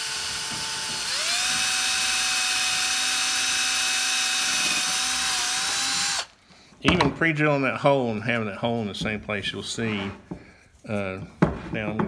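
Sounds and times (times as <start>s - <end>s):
cordless drill boring into wood: 0.0s - 6.4s.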